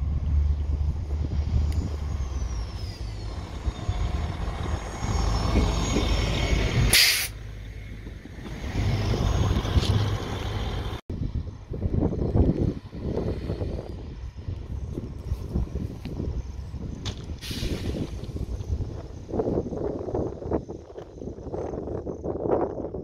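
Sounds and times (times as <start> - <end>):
railcar engine and wheels on rails: 0.0 - 23.0
short loud hiss: 6.9 - 7.4, 17.4 - 18.2.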